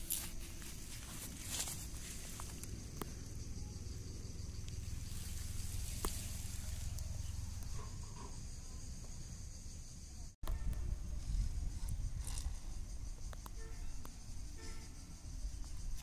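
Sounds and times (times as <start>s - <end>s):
insect chirring: 0.0s - 16.0s
wind on microphone: 10.4s - 13.5s.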